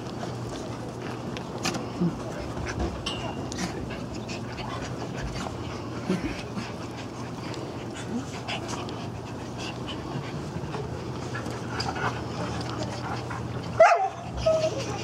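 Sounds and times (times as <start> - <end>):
sharp dog cry: 13.8 - 14.8
small dogs whining: 13.8 - 15.0.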